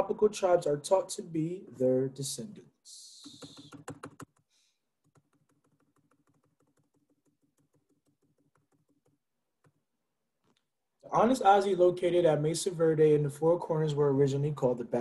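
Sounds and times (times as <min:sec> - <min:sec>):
faint rapid computer clicks: 0:03.1 - 0:09.8.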